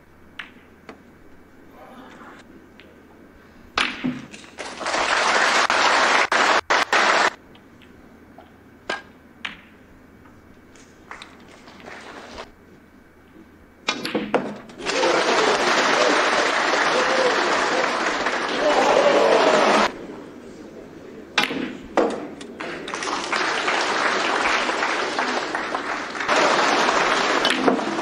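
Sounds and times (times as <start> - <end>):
audience applause: 4.6 - 7.4, 14.8 - 20.0, 22.6 - 28.0.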